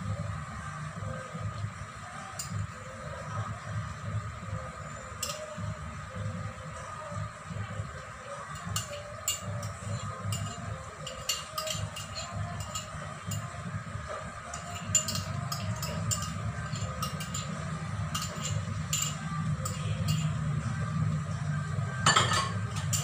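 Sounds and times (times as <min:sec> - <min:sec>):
steady low hum: 0:00.0 - 0:23.0
clicks and clinks in pan: 0:05.2 - 0:05.5, 0:08.6 - 0:13.5, 0:14.5 - 0:20.3, 0:22.1 - 0:23.0.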